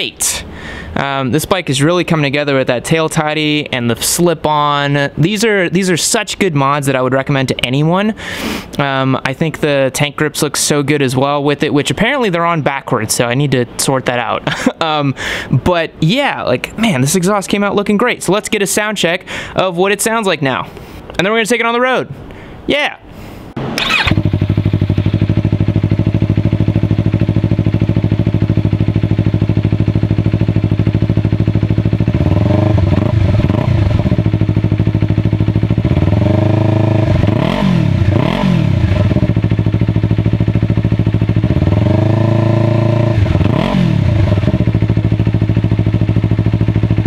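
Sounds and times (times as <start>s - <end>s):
motorcycle engine idling and revving: 23.6s - 47.0s.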